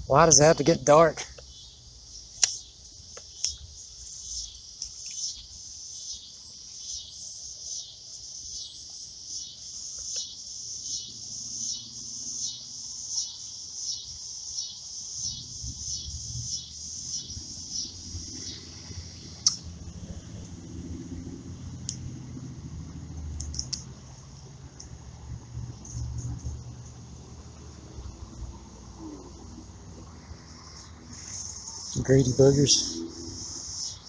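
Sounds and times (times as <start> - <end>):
insects calling: 0.0 - 34.0
sharp clicks: 2.4 - 4.2, 19.4 - 19.7, 23.3 - 24.1.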